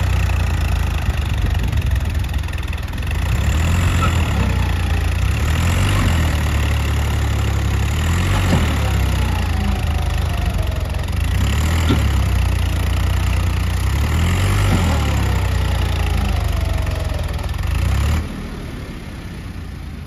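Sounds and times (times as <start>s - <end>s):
tractor diesel engine droning: 0.0s - 20.0s.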